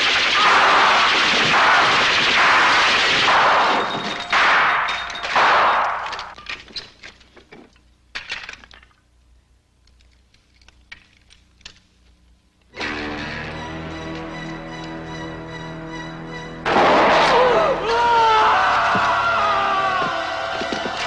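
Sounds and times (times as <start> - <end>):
machine-gun fire: 0.0 - 6.3, 16.7 - 17.3
things shattering: 0.0 - 9.0, 16.7 - 17.7
falling debris clattering: 0.0 - 9.1, 16.7 - 17.6.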